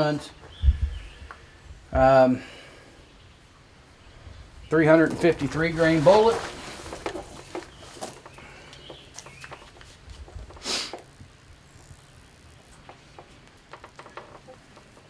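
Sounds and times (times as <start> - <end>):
short rustling hiss: 5.7 - 13.7.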